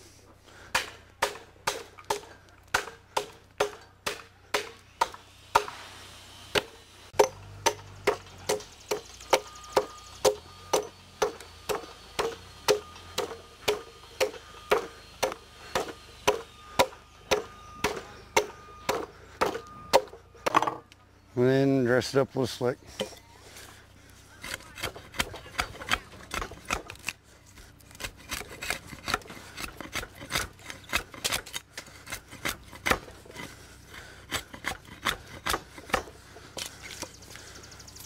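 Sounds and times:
axe chopping into log: 0:06.6 - 0:20.8.

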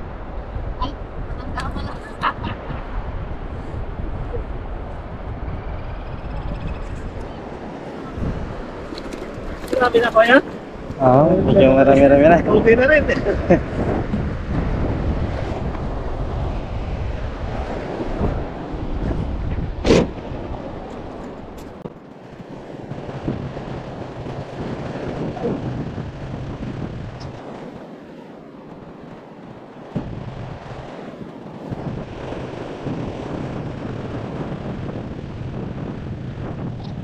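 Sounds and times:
distant surf: 0:00.0 - 0:37.0
wind buffeting microphone: 0:00.0 - 0:37.0
car door shutting: 0:19.8 - 0:20.2.

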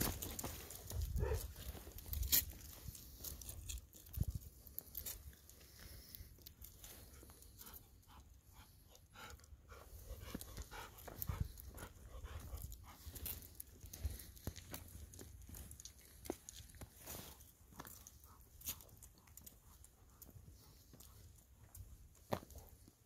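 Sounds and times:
dog panting softly: 0:06.8 - 0:14.9, 0:17.3 - 0:23.0
light clicks and scuffs: 0:09.9 - 0:23.0.

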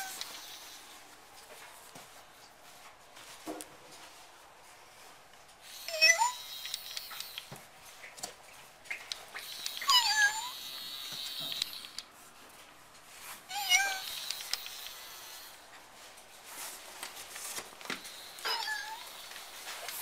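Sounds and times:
robotic toy cat meowing: 0:05.8 - 0:06.8, 0:09.6 - 0:10.8, 0:13.5 - 0:14.8, 0:18.4 - 0:19.1.

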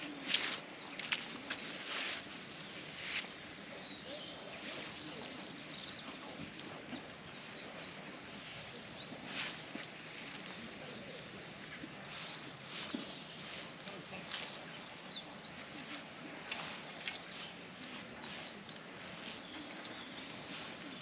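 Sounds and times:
small birds chirping: 0:00.0 - 0:21.0
steady outdoor hiss: 0:00.0 - 0:21.0
faint rustles and clicks: 0:15.7 - 0:21.0.

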